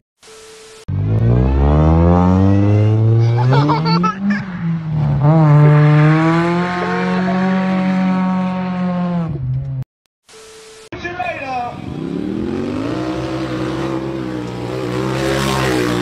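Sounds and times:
car engine revving hard: 0:00.9 - 0:04.1, 0:05.0 - 0:09.4, 0:11.8 - 0:16.0.

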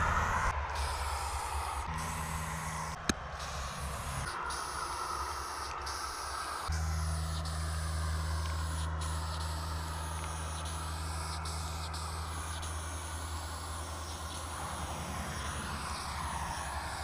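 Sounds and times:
low rumble: 0:00.0 - 0:05.3
spray paint hissing: 0:00.0 - 0:17.0.

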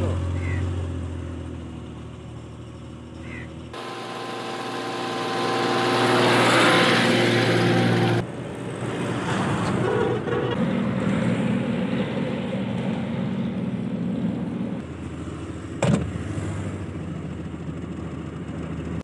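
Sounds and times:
car engine idling: 0:00.0 - 0:08.2, 0:10.7 - 0:19.0
car driving past: 0:05.1 - 0:08.2.

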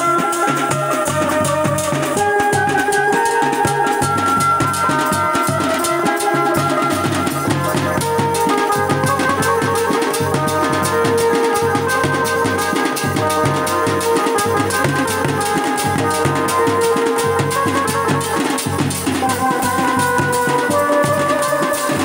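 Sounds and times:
hand drums: 0:00.0 - 0:22.0
lead melody: 0:00.0 - 0:22.0
bass drum beat: 0:07.4 - 0:21.2.

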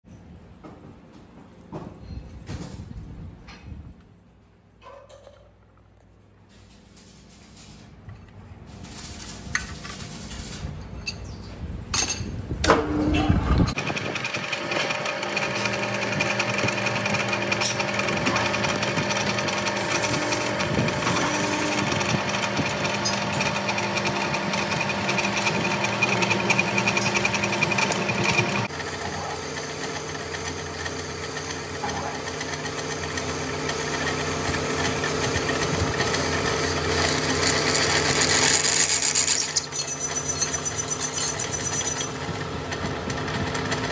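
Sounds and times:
lathe machine hum: 0:13.7 - 0:43.9
drill cutting metal: 0:13.8 - 0:42.7.

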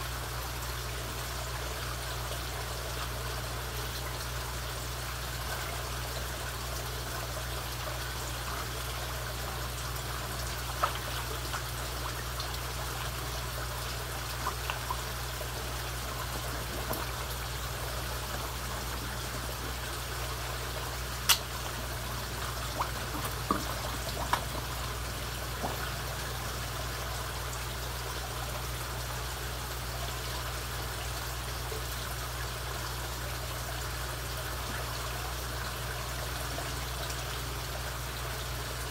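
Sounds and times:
low steady hum: 0:00.0 - 0:38.9
water trickling: 0:00.0 - 0:38.9
fish splashing at surface: 0:22.3 - 0:26.2.

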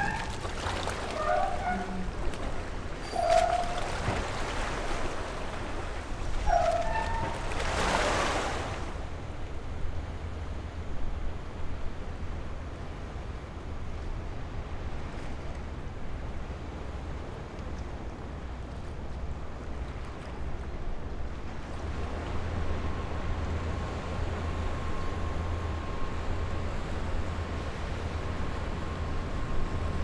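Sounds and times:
waves washing at shore: 0:00.0 - 0:09.3
low wind rumble: 0:00.0 - 0:30.0.

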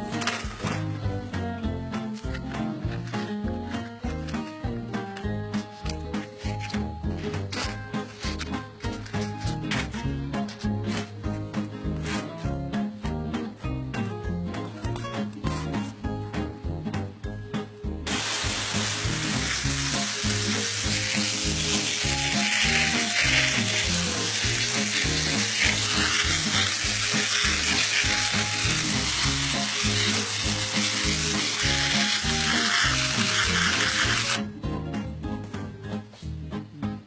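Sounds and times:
background music with bass: 0:00.0 - 0:37.0
molten metal sizzling: 0:18.1 - 0:34.4.

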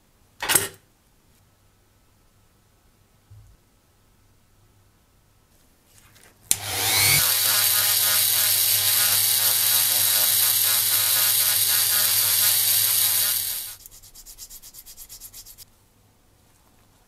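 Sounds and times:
bit grinding metal: 0:06.5 - 0:13.8
rotary tool whining: 0:06.5 - 0:13.8.

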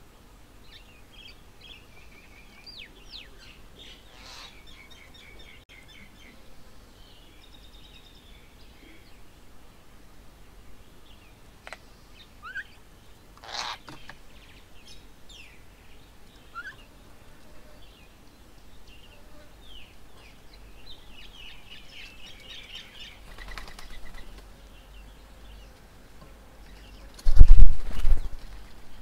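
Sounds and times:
birds chirping: 0:00.0 - 0:09.9, 0:10.6 - 0:29.0
wings fluttering: 0:22.0 - 0:24.6, 0:27.0 - 0:29.0.

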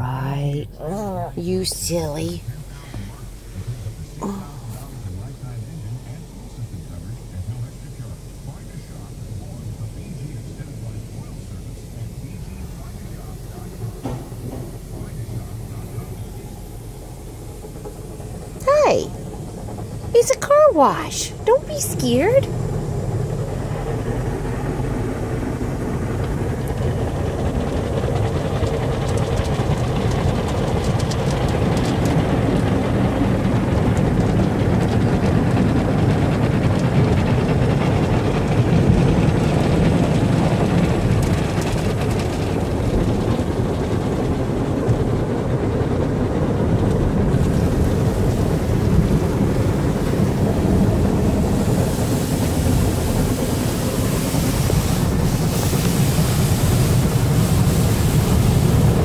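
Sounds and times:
car wash brushes and water spray: 0:46.6 - 0:59.0
hiss: 0:47.3 - 0:59.0.

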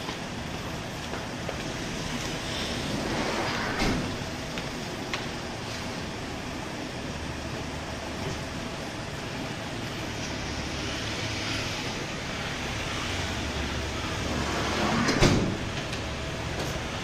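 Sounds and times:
street noise: 0:00.0 - 0:17.0.

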